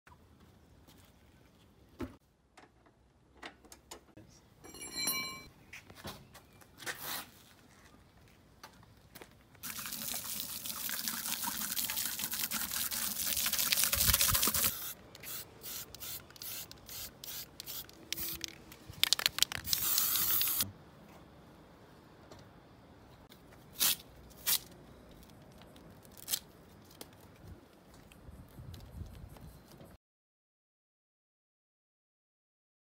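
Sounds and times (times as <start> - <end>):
garden hose spraying water: 9.6 - 18.4, 19.6 - 20.7
aerosol spray paint hissing: 13.9 - 18.4, 19.7 - 20.6.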